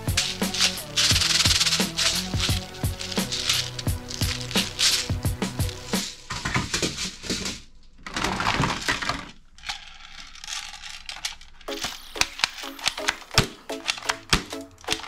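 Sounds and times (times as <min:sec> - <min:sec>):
sharp plastic clicks: 0:00.0 - 0:06.0, 0:10.4 - 0:15.0
plastic toys clattering: 0:00.0 - 0:15.0.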